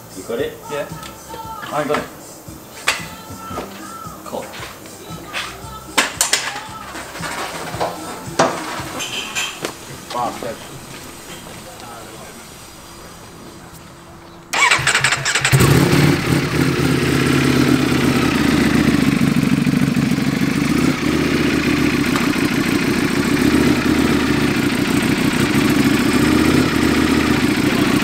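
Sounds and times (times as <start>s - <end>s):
motorcycle engine idling loudly: 14.5s - 28.0s
starter motor cranking: 14.5s - 28.0s.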